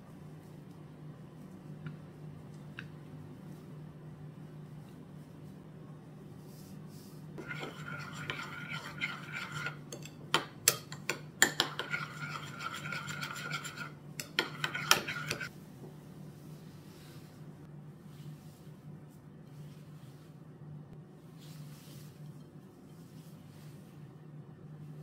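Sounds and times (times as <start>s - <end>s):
spoon scraping thick sauce: 7.4s - 15.5s.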